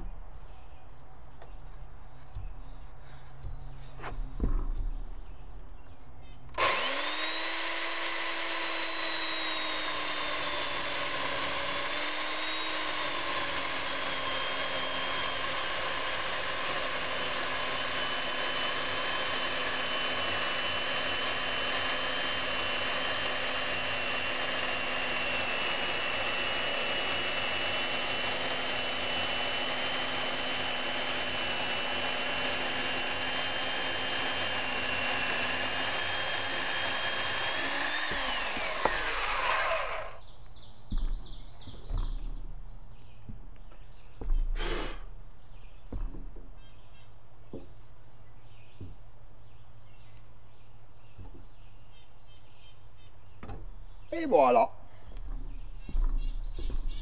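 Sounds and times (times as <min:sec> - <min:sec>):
electric chainsaw cutting wood: 0:06.5 - 0:40.2, 0:44.6 - 0:45.2.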